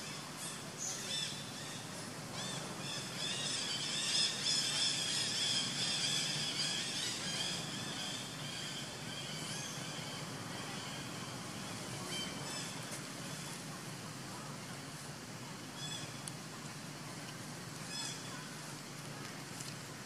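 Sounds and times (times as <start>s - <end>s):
low steady hum: 0.0s - 20.0s
chorus of chirping calls: 0.4s - 13.5s.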